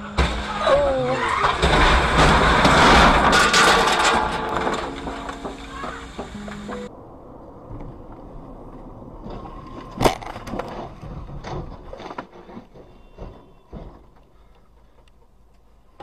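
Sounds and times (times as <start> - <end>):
loud crash bang: 0.0 - 6.8
knocks and clatter of car rolling: 0.0 - 6.9, 7.7 - 14.5.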